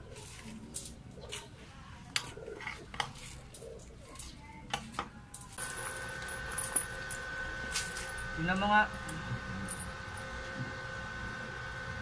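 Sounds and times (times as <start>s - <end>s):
metal parts clinking: 5.3s - 7.2s
steady high hum with hiss: 5.3s - 12.0s.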